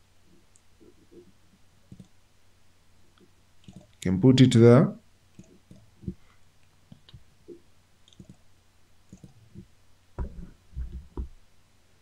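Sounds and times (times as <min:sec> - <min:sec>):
mouse and keyboard clicks: 0:01.9 - 0:02.2, 0:03.6 - 0:04.0, 0:05.4 - 0:06.2, 0:08.1 - 0:08.4, 0:09.1 - 0:09.4.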